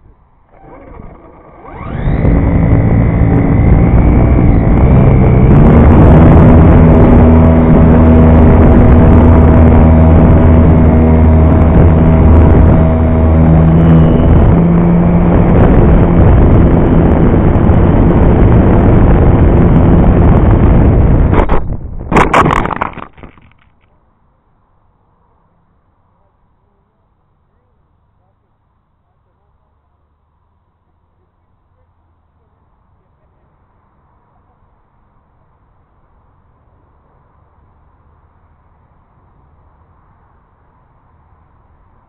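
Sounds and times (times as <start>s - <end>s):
model airplane motor whining: 0.0s - 21.3s.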